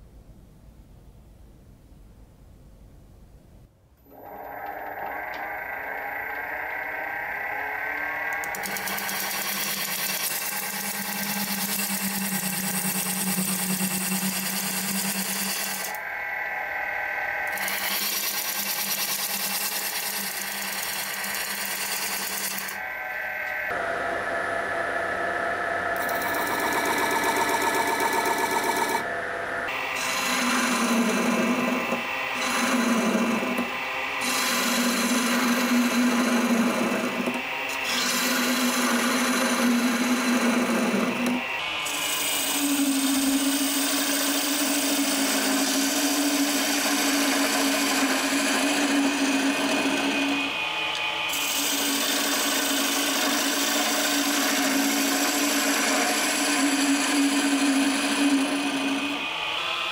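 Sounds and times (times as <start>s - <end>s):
lathe humming: 4.0s - 59.9s
turning tool scraping wood: 8.4s - 16.0s, 17.5s - 22.8s, 30.0s - 50.5s, 51.3s - 59.2s.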